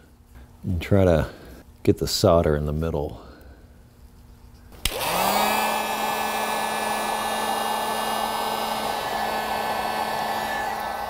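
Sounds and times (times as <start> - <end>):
heat gun fan running: 4.7 - 11.0.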